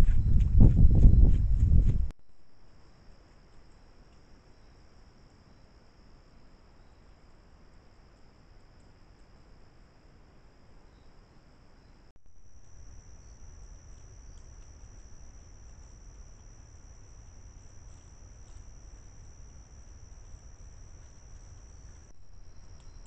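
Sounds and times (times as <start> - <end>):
crickets trilling: 2.4 - 23.0
faint ticks: 3.1 - 4.4, 8.1 - 9.4, 12.6 - 23.0.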